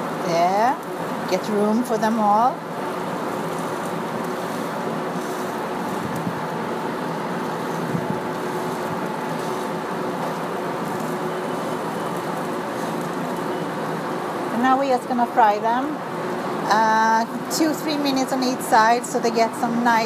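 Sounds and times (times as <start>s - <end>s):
patties sizzling in a frying pan: 0.3s - 14.3s.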